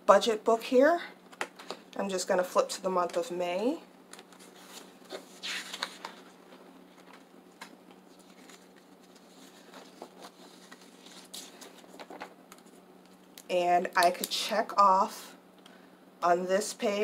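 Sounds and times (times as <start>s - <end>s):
paper pages flipping: 4.1s - 13.4s
fingers rustling and tapping paper: 5.7s - 13.4s.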